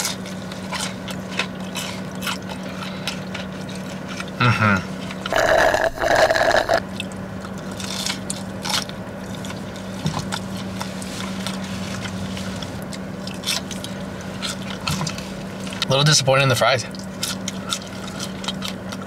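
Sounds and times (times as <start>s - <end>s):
chewing with mouth clicks: 0.0s - 4.4s, 5.0s - 15.9s, 16.9s - 19.0s
slurping through a straw: 5.3s - 6.8s.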